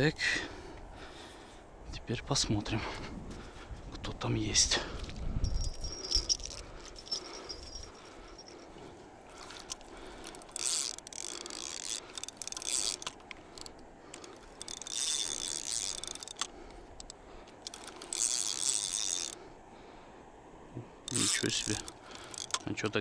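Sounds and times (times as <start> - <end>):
fishing reel whirring and clicking: 9.4 - 19.4, 21.0 - 22.9.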